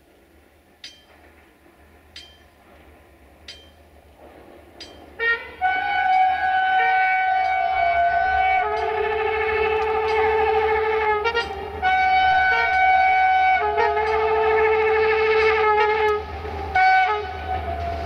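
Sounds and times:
train horn chord blast: 0:05.2 - 0:18.0.

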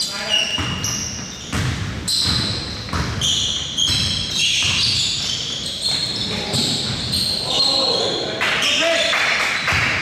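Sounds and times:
sneakers squeaking on court: 0:00.0 - 0:07.9, 0:09.6 - 0:10.0
basketball bouncing: 0:00.5 - 0:07.2, 0:09.6 - 0:10.0.

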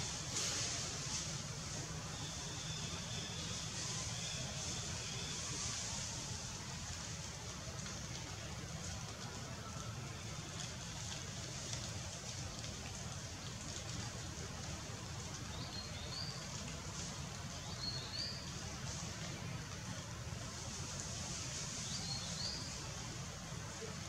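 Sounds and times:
hiss: 0:00.0 - 0:07.4, 0:20.4 - 0:23.9.

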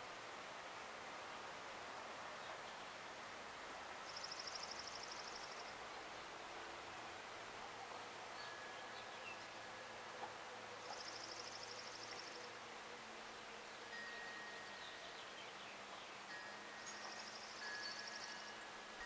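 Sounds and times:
faint outdoor ambience: 0:00.0 - 0:19.0
faint long ringing tones: 0:04.0 - 0:05.8, 0:08.2 - 0:19.0.

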